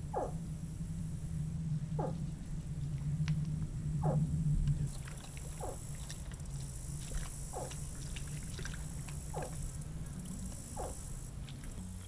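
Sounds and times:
faint splashing in water: 0:04.8 - 0:11.9
high insect-like buzz: 0:05.6 - 0:12.0.

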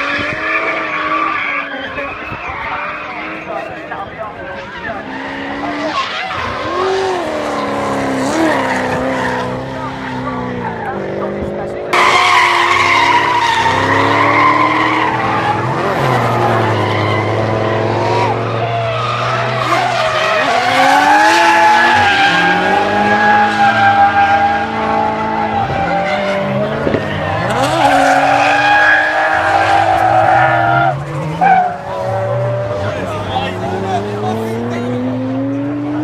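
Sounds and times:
car engines revving: 0:00.0 - 0:36.0
tyres squealing: 0:12.0 - 0:32.2.

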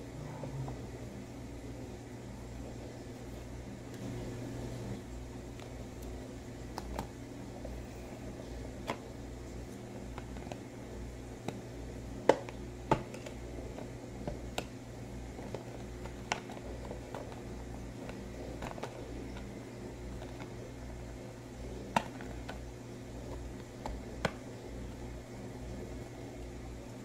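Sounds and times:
steady low hum: 0:00.0 - 0:27.0
plastic and card clicks and taps: 0:08.8 - 0:09.0, 0:12.2 - 0:14.8, 0:15.4 - 0:19.5.

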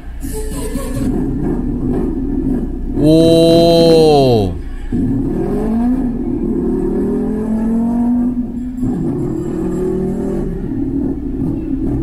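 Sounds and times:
boy imitating car engine vocally: 0:03.0 - 0:04.7.

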